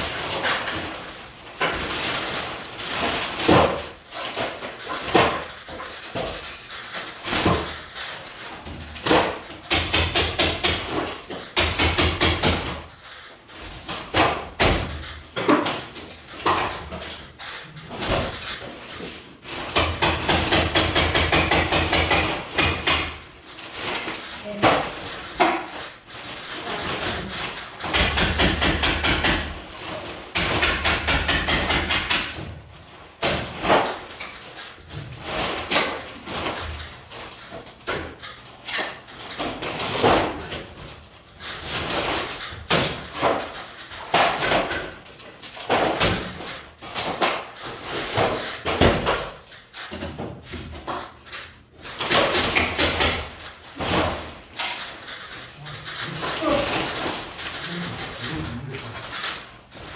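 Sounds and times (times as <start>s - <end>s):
hammering on wood: 9.0s - 12.9s, 19.5s - 23.2s, 27.8s - 29.6s, 30.3s - 32.6s.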